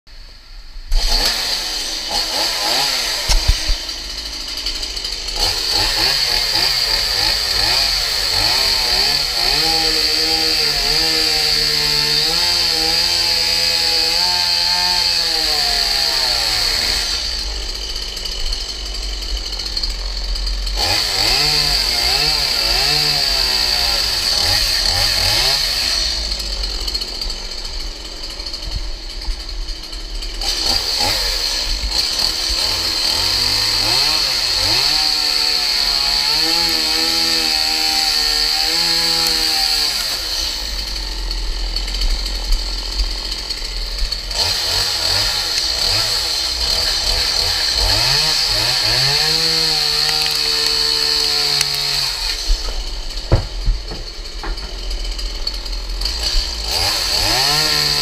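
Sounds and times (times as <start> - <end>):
chainsaw cutting wood: 0.2 - 58.0.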